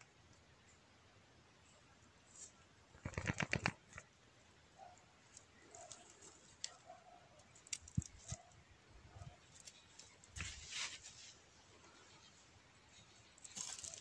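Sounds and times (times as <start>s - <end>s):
rustles in dry leaves: 9.4s - 14.0s.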